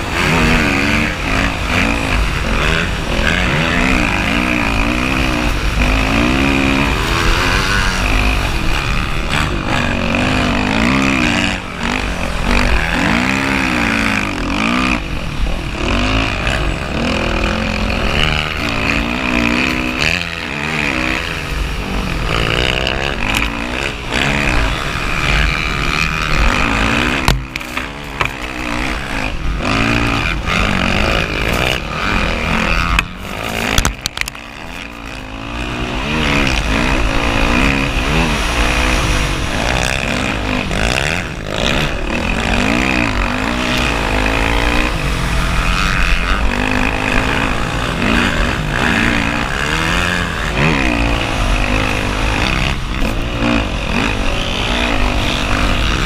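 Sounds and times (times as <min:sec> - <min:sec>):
dirt bike engine revving: 0:00.0 - 0:56.0.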